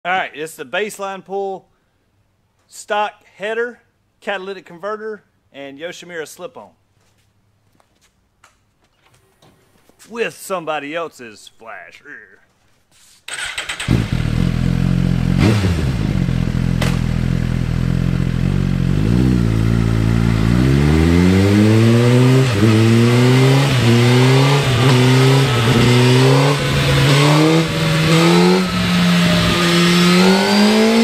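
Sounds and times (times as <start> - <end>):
motorcycle engine revving: 13.3 - 31.0.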